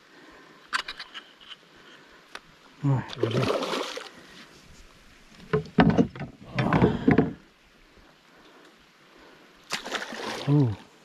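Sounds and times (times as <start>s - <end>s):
water splashing: 3.0s - 4.4s, 9.7s - 11.0s.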